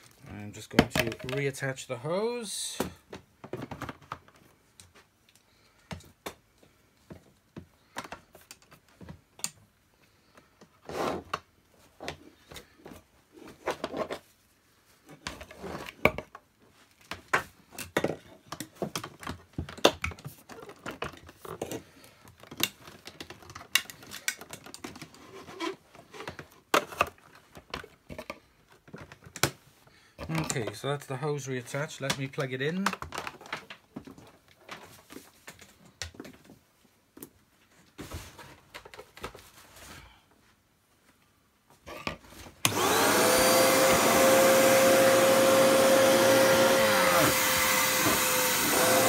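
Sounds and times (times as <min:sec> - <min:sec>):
plastic clicks and scrapes: 0:17.0 - 0:29.6.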